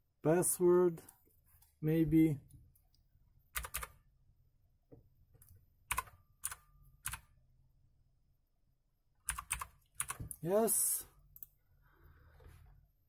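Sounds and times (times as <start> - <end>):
computer keyboard keystrokes: 3.6 - 3.9, 5.9 - 7.2, 9.3 - 10.4.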